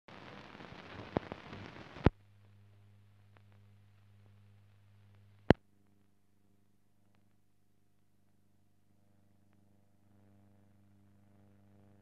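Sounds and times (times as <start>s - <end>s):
film soundtrack hiss and crackle: 0.1s - 12.0s
low steady hum: 2.1s - 12.0s
faint ticks: 7.0s - 7.4s, 9.4s - 10.3s.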